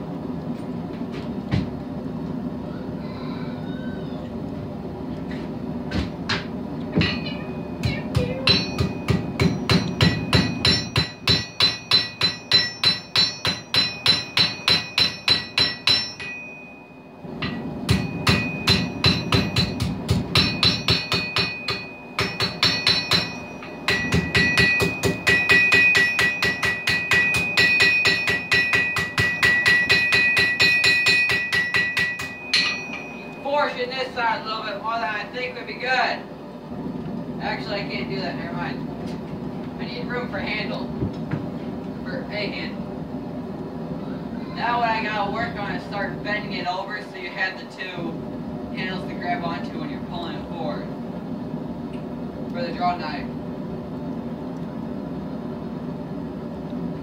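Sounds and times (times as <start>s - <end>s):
hammer striking steel on anvil: 6.3s - 33.4s.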